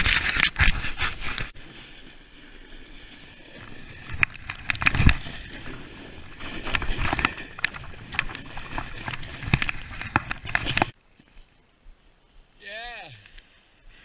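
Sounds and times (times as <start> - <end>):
snowboard scraping through snow: 0.0 - 4.1, 4.9 - 9.5.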